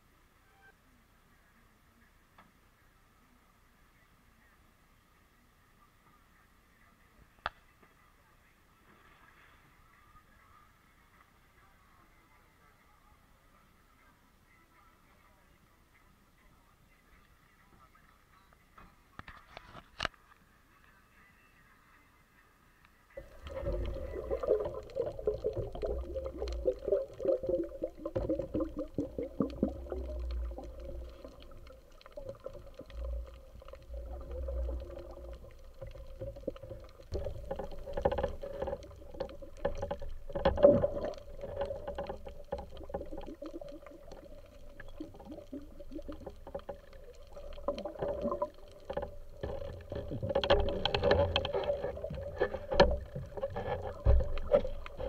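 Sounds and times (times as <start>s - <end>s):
steady underwater hum: 23.1s - 55.0s
underwater clicks and knocks: 23.2s - 55.0s
water churning and bubbling: 23.2s - 55.0s.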